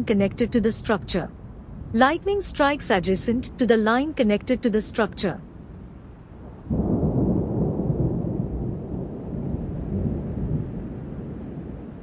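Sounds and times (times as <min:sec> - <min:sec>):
deep rumble of thunder: 0:05.6 - 0:12.0.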